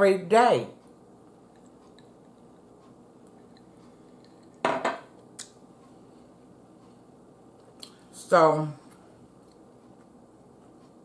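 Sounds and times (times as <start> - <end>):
glass set down on table: 4.6 - 5.1.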